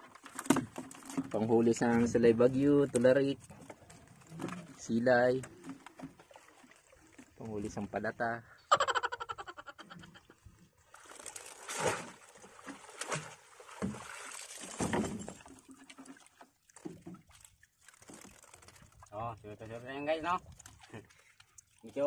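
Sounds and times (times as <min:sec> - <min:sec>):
seawater splashing and streaming: 0:00.0 - 0:08.7, 0:09.3 - 0:22.0.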